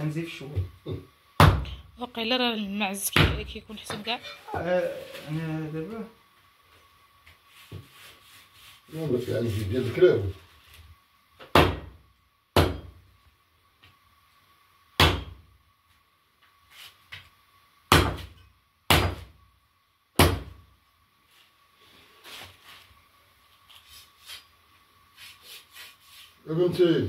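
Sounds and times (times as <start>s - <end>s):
knife chopping meat and bone: 1.4s - 1.7s, 11.4s - 12.0s, 12.6s - 13.0s, 15.0s - 15.4s, 17.9s - 19.3s, 20.2s - 20.6s.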